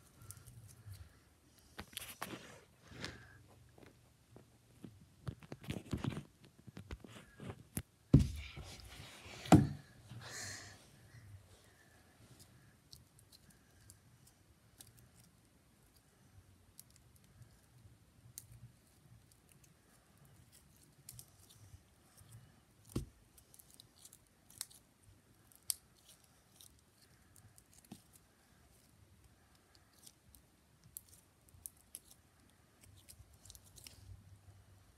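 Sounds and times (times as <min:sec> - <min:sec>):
slime clicking and crackling: 0:29.8 - 0:32.2.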